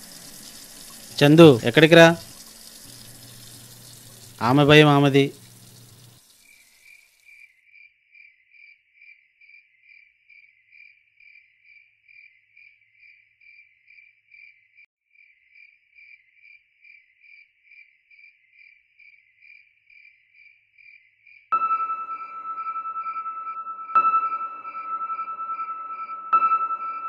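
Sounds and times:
cricket chirping: 0.0 - 1.2, 2.0 - 27.0
music: 21.6 - 27.0.

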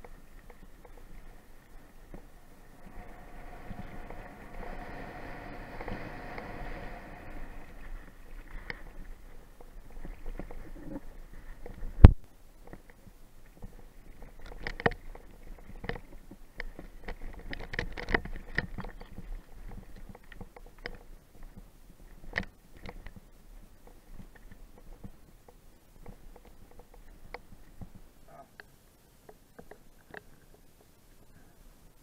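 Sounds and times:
low rumble: 0.7 - 11.3.

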